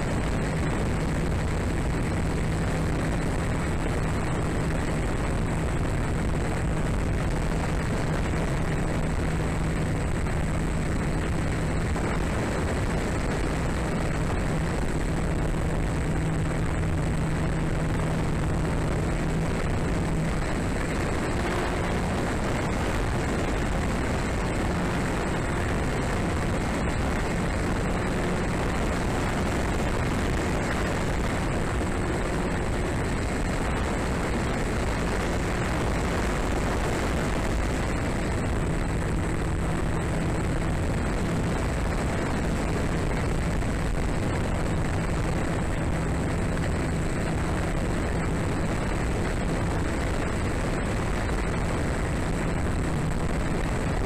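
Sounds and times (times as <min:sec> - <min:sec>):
thin high whine: 0:00.0 - 0:54.0
wind rush on microphone: 0:00.0 - 0:54.0
electric motor propeller hum: 0:13.8 - 0:41.8.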